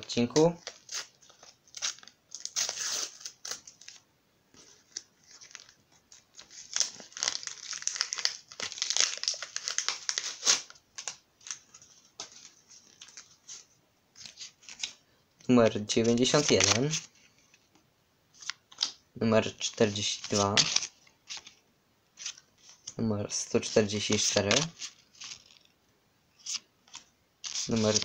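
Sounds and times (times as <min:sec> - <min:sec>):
wrapper crinkling and crackling: 0:00.1 - 0:04.0, 0:04.6 - 0:13.6, 0:19.6 - 0:21.6, 0:22.2 - 0:25.7, 0:26.4 - 0:28.0
packet tearing: 0:06.4 - 0:11.6, 0:26.4 - 0:28.0.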